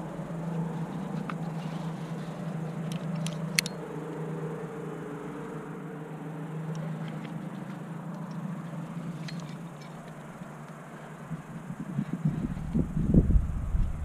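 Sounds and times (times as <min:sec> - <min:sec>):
steady low rumble: 0:00.0 - 0:14.0
climbing gear clicking: 0:00.8 - 0:03.8, 0:06.7 - 0:12.9.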